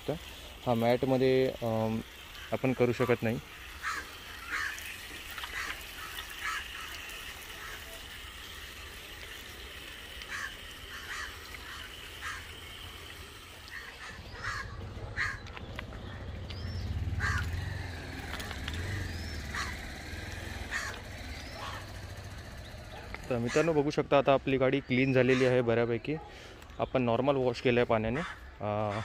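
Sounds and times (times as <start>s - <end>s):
small birds chirping: 0.8s - 29.0s
crows cawing: 3.6s - 8.0s, 10.2s - 22.4s, 23.3s - 23.8s, 25.3s - 25.6s, 28.1s - 29.0s.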